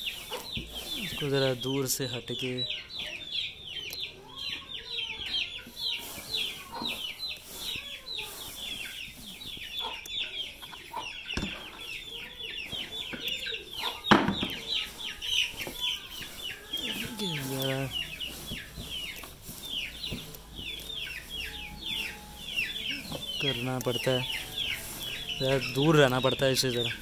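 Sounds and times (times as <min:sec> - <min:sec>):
small birds chirping: 0:00.0 - 0:27.0.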